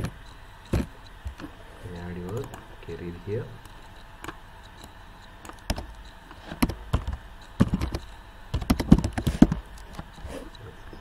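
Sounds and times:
keyboard key clicks: 0:06.6 - 0:10.0.

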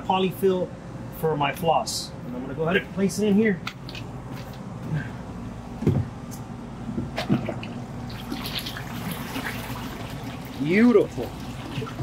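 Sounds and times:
steady low hum: 0:00.0 - 0:12.0
water sloshing: 0:07.0 - 0:12.0.

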